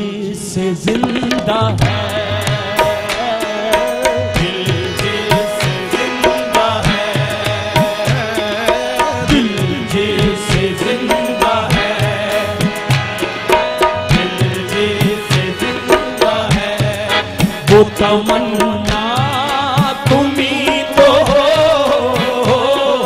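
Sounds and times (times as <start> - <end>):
harmonium melody: 0.0 - 23.0
fast tabla rhythm: 0.8 - 23.0.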